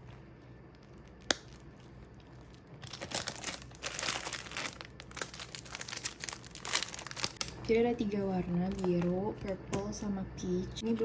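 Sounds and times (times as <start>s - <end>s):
plastic packaging crinkling: 0.0s - 7.7s, 8.4s - 9.1s.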